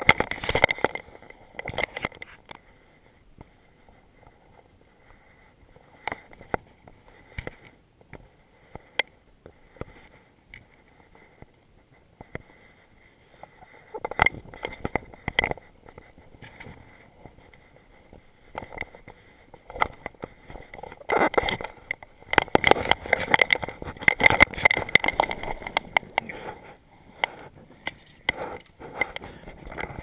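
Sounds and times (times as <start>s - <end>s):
footsteps on river stones: 15.6s - 30.0s.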